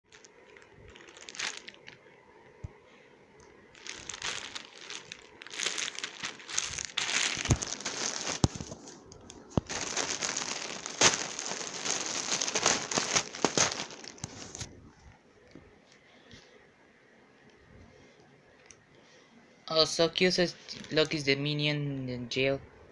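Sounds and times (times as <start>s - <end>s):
plastic wrapping crinkling: 0.1s - 2.2s, 3.7s - 14.7s.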